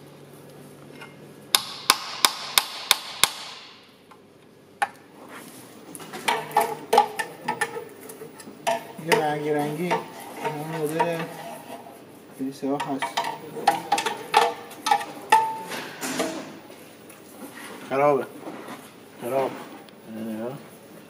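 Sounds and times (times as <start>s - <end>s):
tools tapping steel oil pan: 6.2s - 11.8s, 12.7s - 16.4s.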